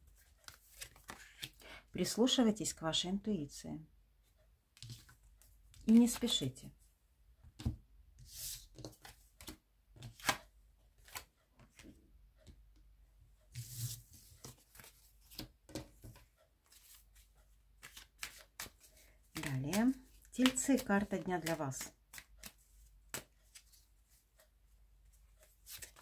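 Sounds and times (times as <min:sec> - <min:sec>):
cards being shuffled: 0:00.1 - 0:01.6, 0:08.3 - 0:11.9, 0:13.6 - 0:24.5, 0:25.4 - 0:26.0.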